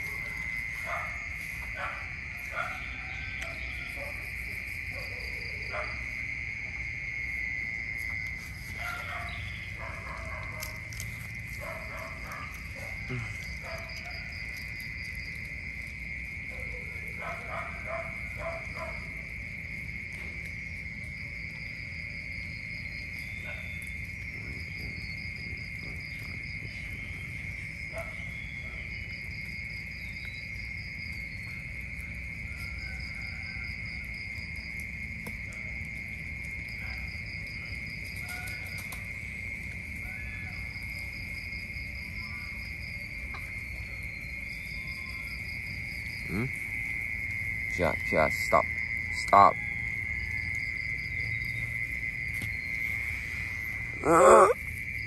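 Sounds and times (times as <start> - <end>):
high-pitched insect drone: 40.0 - 55.0.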